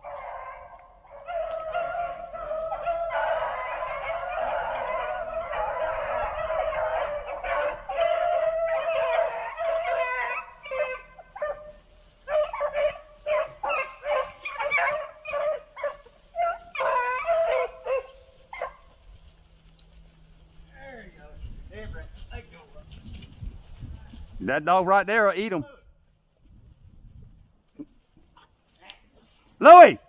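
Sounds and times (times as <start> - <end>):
beagles baying: 0.0 - 20.7.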